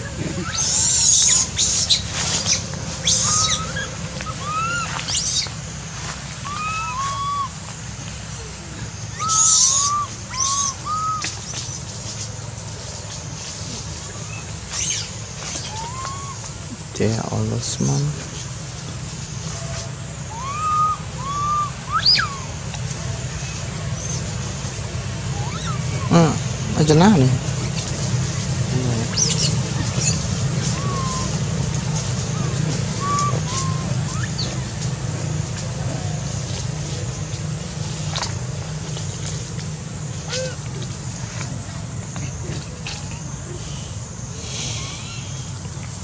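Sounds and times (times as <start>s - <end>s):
baby monkeys screeching and cooing: 0.0s - 5.6s, 6.4s - 7.6s, 8.3s - 12.3s, 13.4s - 16.7s, 19.4s - 24.4s, 25.2s - 38.3s, 40.1s - 40.9s, 44.4s - 45.6s
steady low hum: 0.0s - 46.0s.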